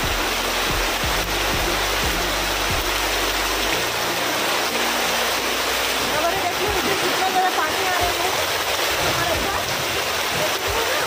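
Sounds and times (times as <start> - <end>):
music with low beat: 0.0 - 6.1
heavy rain pouring: 0.0 - 11.0.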